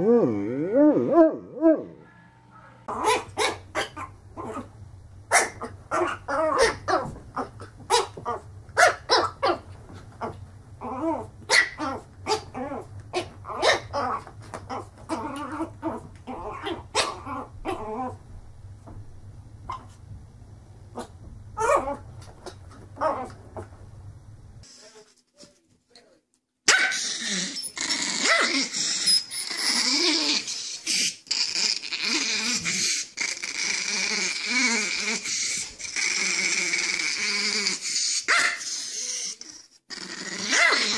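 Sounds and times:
large dog warbling moan: 0.0s - 2.1s.

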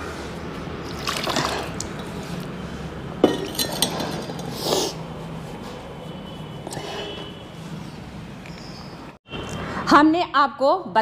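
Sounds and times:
metal flask knocking and clinking: 3.2s - 4.5s.

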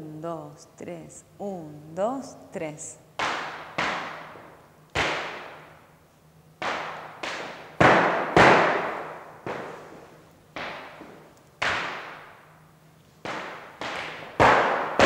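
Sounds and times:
shoes stamping on floor: 6.6s - 12.1s.

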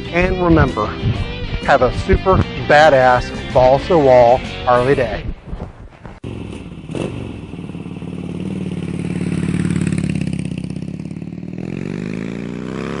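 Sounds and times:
motorcycle engine revving: 6.0s - 13.0s.

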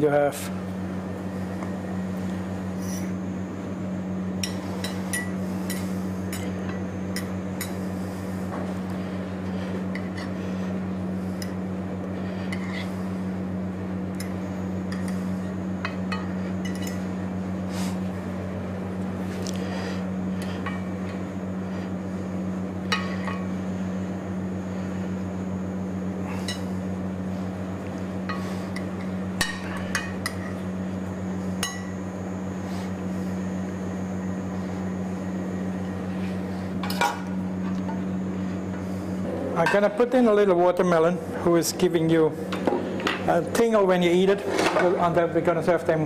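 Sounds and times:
steady low hum: 0.0s - 46.0s
utensils clinking on dishes: 15.8s - 17.0s.

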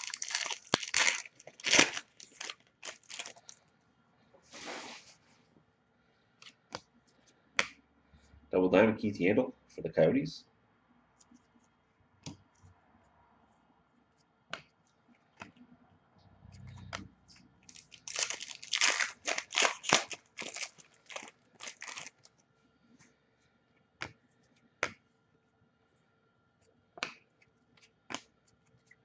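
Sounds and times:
wrapper crinkling and tearing: 0.0s - 3.6s, 17.7s - 22.3s.

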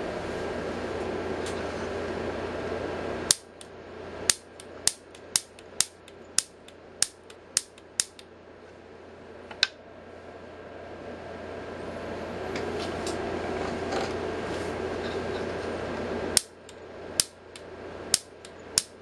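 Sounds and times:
steady background hum: 0.0s - 19.0s
grill igniter spark snaps: 3.2s - 8.3s, 16.3s - 19.0s.

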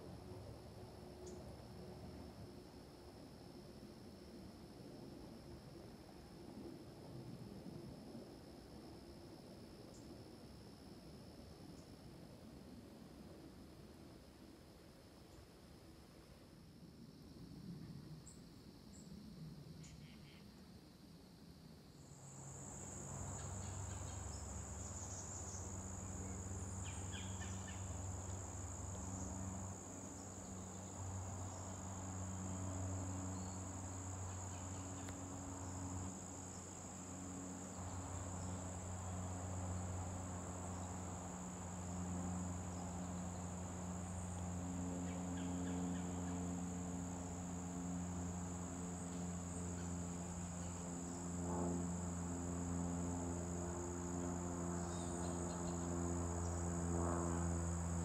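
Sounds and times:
insects trilling: 16.8s - 58.0s
low droning hum: 22.2s - 58.0s.

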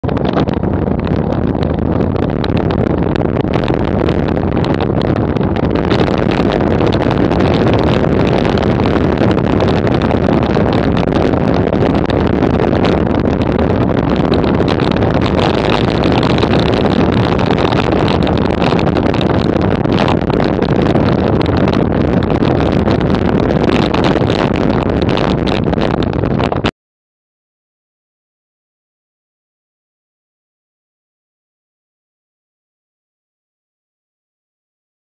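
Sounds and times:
wind rushing over microphone: 0.0s - 26.7s.

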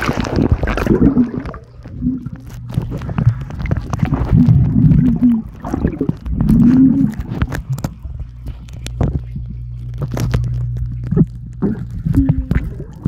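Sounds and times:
clicks and knocks of water: 0.0s - 13.0s
low steady hum: 0.0s - 13.0s
underwater rumble: 0.0s - 13.0s.

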